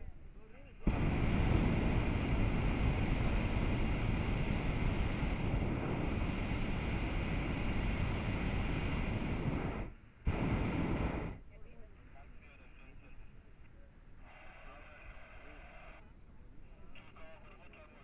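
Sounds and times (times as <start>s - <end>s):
propane burner firing: 0.9s - 11.4s.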